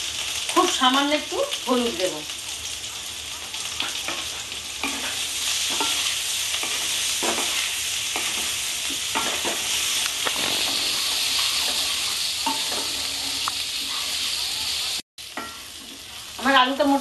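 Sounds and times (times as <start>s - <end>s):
potatoes sizzling in oil: 0.0s - 17.0s
spatula scraping a pan: 3.8s - 16.3s.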